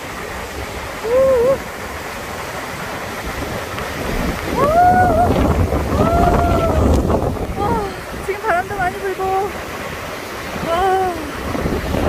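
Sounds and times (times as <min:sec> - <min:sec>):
river rushing over boulders: 0:00.0 - 0:12.0
wind buffeting microphone: 0:00.0 - 0:12.0
person calling out: 0:01.0 - 0:01.6.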